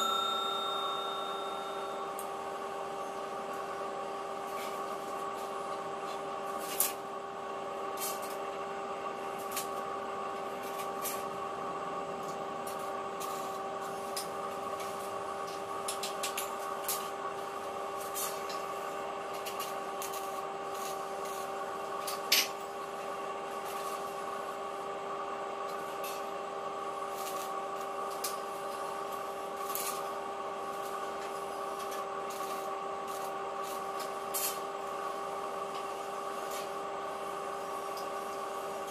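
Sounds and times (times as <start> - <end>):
machine hum: 0.0 - 6.1.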